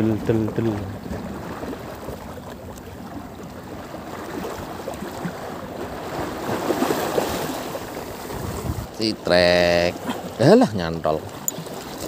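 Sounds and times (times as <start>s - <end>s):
water lapping: 0.0s - 12.0s
wind buffeting microphone: 5.9s - 9.0s.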